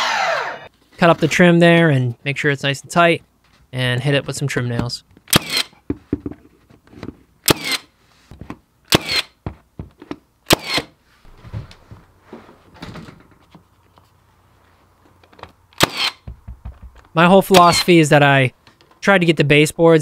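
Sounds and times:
soft knocks and handling noise: 0:03.4 - 0:07.3, 0:08.2 - 0:08.7, 0:11.2 - 0:15.6
nail gun firing: 0:05.3 - 0:05.7, 0:07.4 - 0:07.9, 0:08.9 - 0:09.4, 0:10.5 - 0:10.9, 0:15.8 - 0:16.4.

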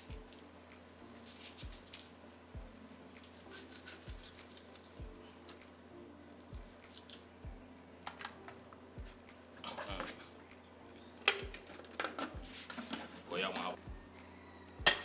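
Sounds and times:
soft background music beat: 0:00.0 - 0:15.0.

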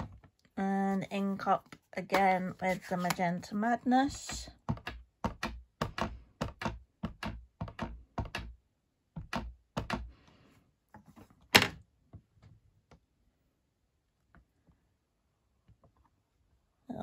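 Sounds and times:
ink pad tapping on stamp: 0:04.6 - 0:08.6.

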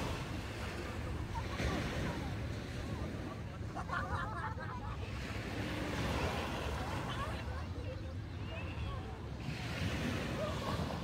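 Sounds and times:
waves washing onto sand: 0:00.0 - 0:03.9, 0:04.9 - 0:07.6, 0:09.3 - 0:11.0.

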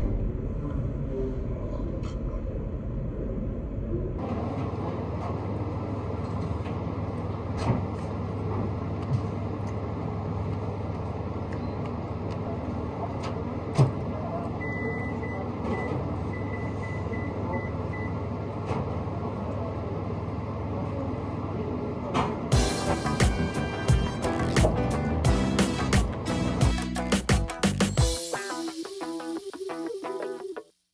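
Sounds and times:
low rumbling room noise: 0:00.0 - 0:14.7.

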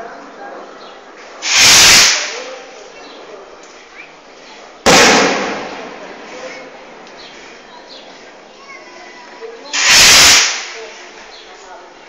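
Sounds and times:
people talking: 0:00.0 - 0:04.8, 0:05.5 - 0:12.0
loud hissing bursts: 0:01.4 - 0:02.7, 0:09.7 - 0:11.2.

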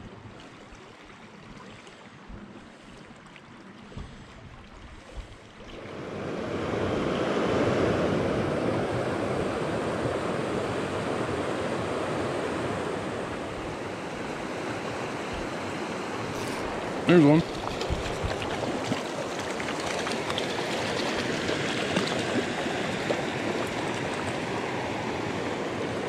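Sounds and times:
stream rushing over rocks: 0:13.3 - 0:26.0.

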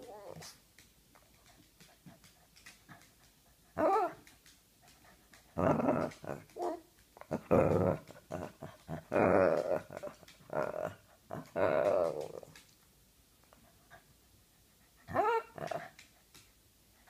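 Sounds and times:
dog whining: 0:00.0 - 0:00.6, 0:03.8 - 0:04.2, 0:09.1 - 0:12.6, 0:15.1 - 0:15.8
dog growling: 0:05.6 - 0:12.6, 0:15.1 - 0:16.0.

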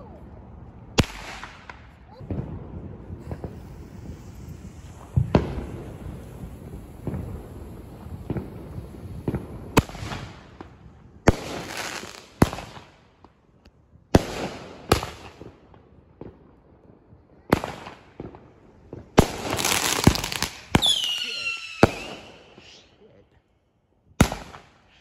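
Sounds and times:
fireworks bangs: 0:00.8 - 0:13.4, 0:14.1 - 0:22.9, 0:24.2 - 0:25.0
hissing crackle of sparks: 0:02.8 - 0:13.0.

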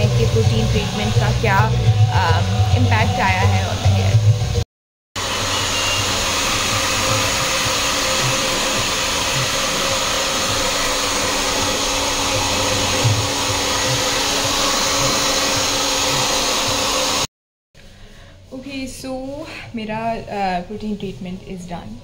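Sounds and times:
hair dryer whirring and blowing: 0:00.0 - 0:04.6, 0:05.2 - 0:17.3.

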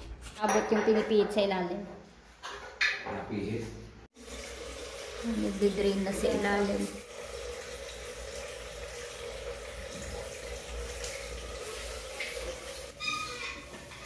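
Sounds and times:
water draining from tank valve: 0:04.2 - 0:14.0.

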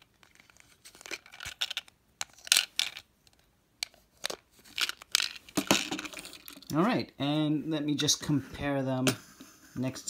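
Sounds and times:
plastic balls clicking and rattling: 0:00.0 - 0:06.7.

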